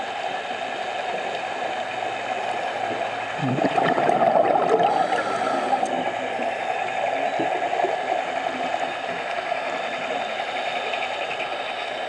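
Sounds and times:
underwater exhaled bubbles: 0:03.3 - 0:10.2.

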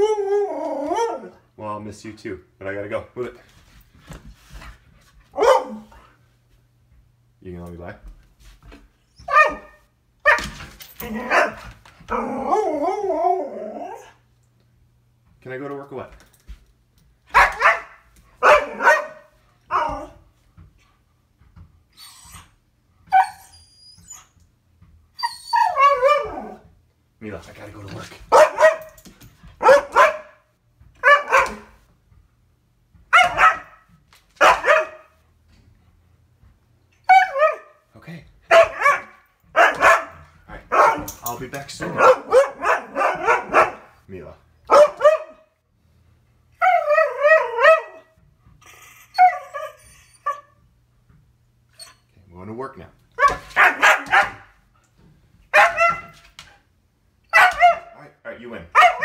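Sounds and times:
husky howling: 0:00.0 - 0:01.4, 0:11.0 - 0:14.2, 0:25.2 - 0:26.6, 0:37.1 - 0:37.8, 0:46.6 - 0:48.2
husky barking: 0:05.4 - 0:05.9, 0:09.3 - 0:12.7, 0:17.3 - 0:20.2, 0:25.6 - 0:26.6, 0:28.3 - 0:29.0, 0:29.6 - 0:30.4, 0:31.0 - 0:31.8, 0:33.1 - 0:35.2, 0:37.1 - 0:37.8, 0:38.5 - 0:41.2, 0:41.8 - 0:44.0, 0:44.7 - 0:45.5, 0:46.6 - 0:48.2, 0:53.2 - 0:54.6, 0:55.5 - 0:56.2, 0:57.3 - 0:58.0, 0:58.7 - 0:59.0.

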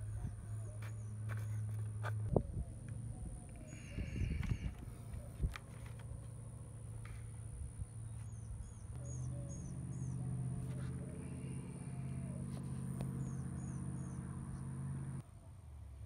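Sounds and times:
low droning hum: 0:00.0 - 0:15.2
small birds chirping: 0:03.4 - 0:05.5, 0:07.1 - 0:15.2.

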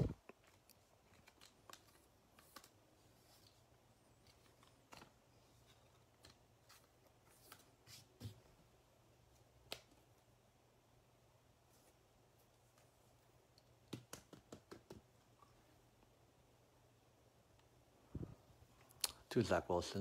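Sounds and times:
trading cards clicking and rustling: 0:00.1 - 0:07.8.

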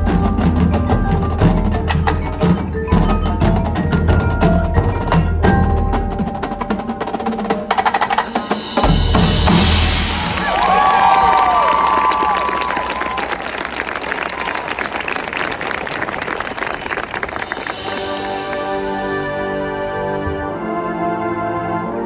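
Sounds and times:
mallet instruments: 0:00.0 - 0:13.1
drums striking a rhythm: 0:00.0 - 0:13.4
marching band percussion: 0:00.0 - 0:19.6.

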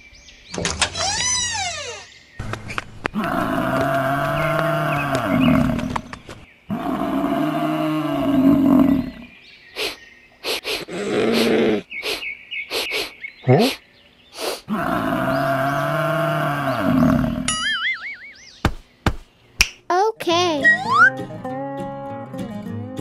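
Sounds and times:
deep animal call: 0:03.1 - 0:09.9, 0:14.4 - 0:17.5.

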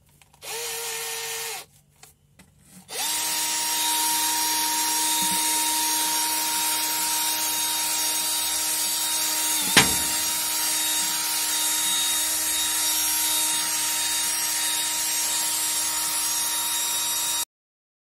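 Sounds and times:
drill motor whine: 0:00.4 - 0:01.7, 0:02.9 - 0:17.5
sharp knock: 0:09.6 - 0:10.3.

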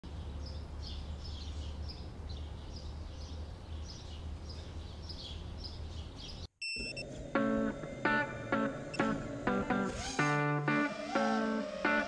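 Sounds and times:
bird chirping: 0:00.1 - 0:06.5.

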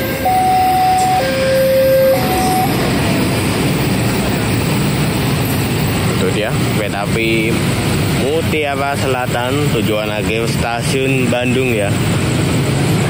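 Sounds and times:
two-note alternating tone: 0:00.0 - 0:03.1
diesel engines idling: 0:00.0 - 0:13.0.

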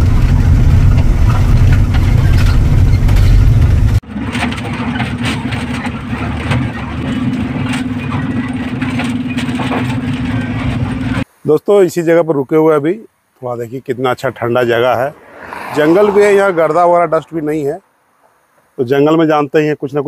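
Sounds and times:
engine hum: 0:00.0 - 0:11.2, 0:14.4 - 0:18.8
vehicle engine low rumble: 0:00.0 - 0:11.2, 0:14.5 - 0:18.7.

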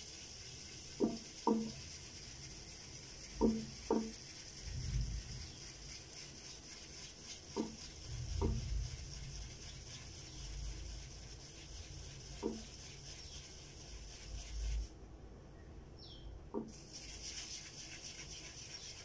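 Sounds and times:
shaving brush swirling in lather: 0:00.0 - 0:14.9, 0:16.7 - 0:19.0
brush knocking against bowl: 0:00.9 - 0:02.0, 0:03.2 - 0:04.5, 0:07.4 - 0:09.0, 0:12.2 - 0:13.4, 0:16.5 - 0:19.0.

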